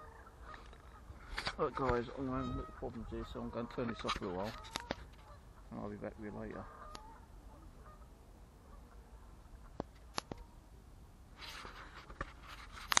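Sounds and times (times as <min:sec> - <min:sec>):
brief rustle: 0:00.5 - 0:02.0, 0:03.8 - 0:05.3, 0:11.4 - 0:13.0.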